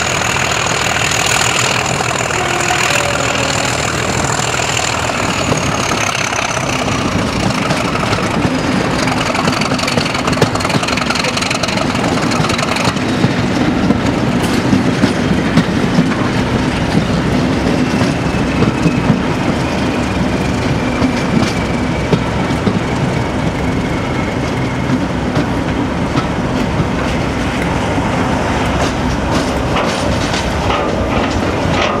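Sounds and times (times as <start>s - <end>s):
wheels clicking over rail joints: 0.0s - 23.8s, 28.6s - 32.0s
diesel locomotive engine: 0.0s - 32.0s.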